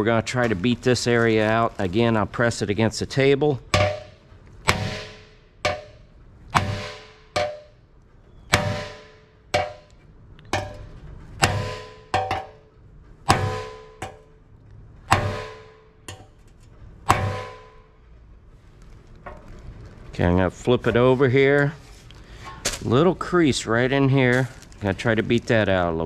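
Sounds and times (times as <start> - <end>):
hammer striking sheet metal: 3.7 - 7.8, 8.5 - 12.7, 13.3 - 14.3, 15.1 - 16.3, 17.1 - 17.9.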